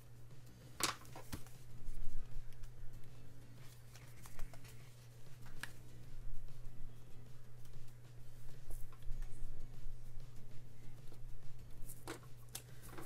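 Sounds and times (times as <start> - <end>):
steady low hum: 0.0 - 13.0
paper stickers rustling: 3.6 - 5.8.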